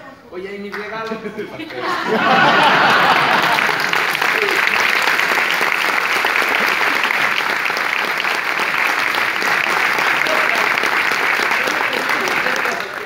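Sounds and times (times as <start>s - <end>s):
many hands clapping: 2.7s - 13.0s.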